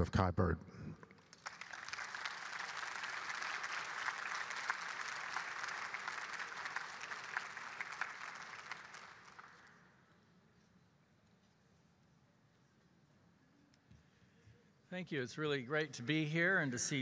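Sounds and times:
audience applauding: 1.2s - 9.8s.

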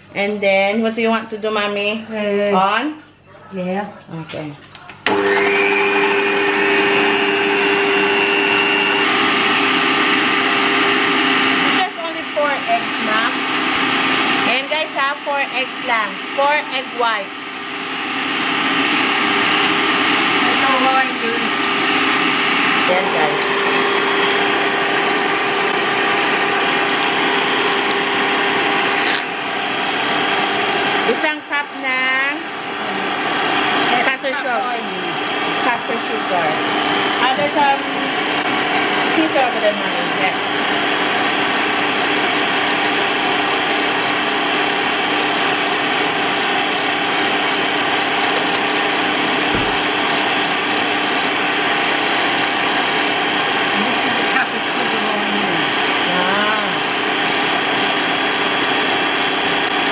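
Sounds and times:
stand mixer whisking: 5.0s - 30.9s
stand mixer motor humming: 5.0s - 31.6s, 32.5s - 59.9s.

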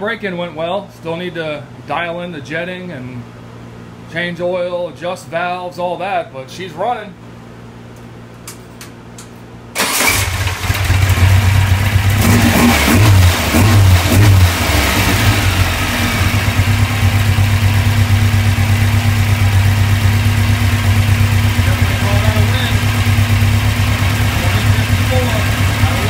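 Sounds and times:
car engine revving and idling: 10.0s - 26.0s.

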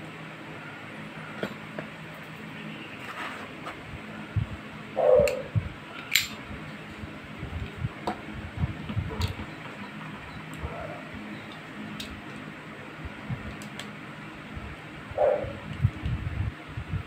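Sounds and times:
metal revolver handling clicks: 6.0s - 6.4s.

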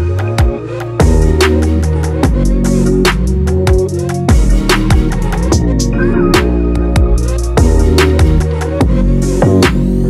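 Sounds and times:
electronic music with heavy bass: 0.0s - 10.0s.

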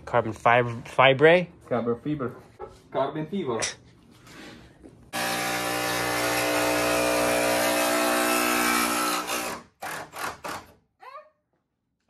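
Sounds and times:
jigsaw cutting whine: 5.2s - 10.8s.

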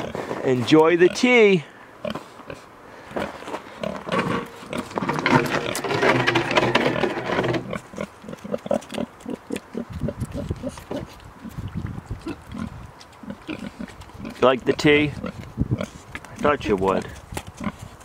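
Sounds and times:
pig grunting and slurping: 3.3s - 18.0s
pig gulping water: 8.0s - 14.4s.

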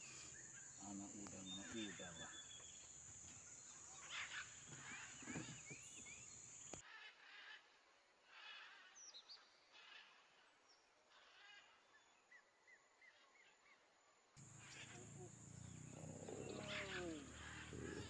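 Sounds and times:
bird chirping: 0.0s - 6.8s, 14.4s - 18.0s.

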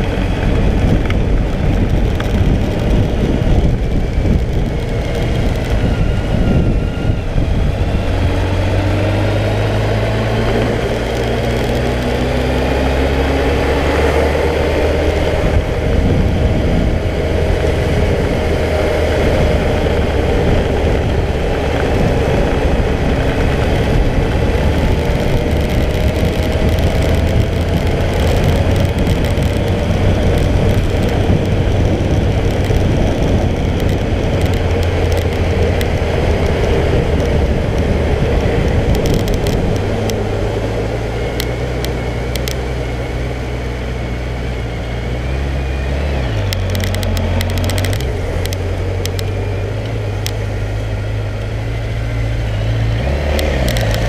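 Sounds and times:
motorcycle engine: 0.0s - 54.0s
wind and road noise: 0.0s - 54.0s.

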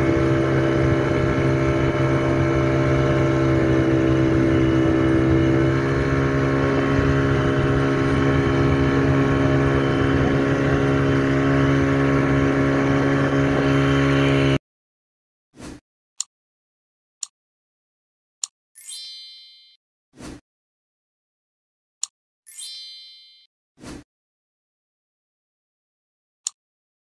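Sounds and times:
motorboat engine drone: 0.0s - 14.6s.

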